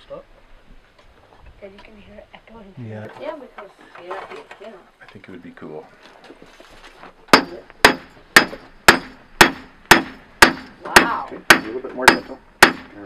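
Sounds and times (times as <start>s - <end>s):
hammer striking metal on anvil: 7.3s - 13.0s.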